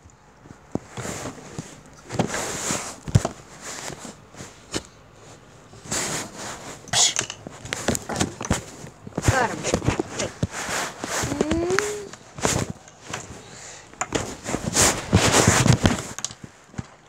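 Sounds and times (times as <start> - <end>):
plastic toys clicking and knocking: 7.0 - 10.3, 15.7 - 17.0.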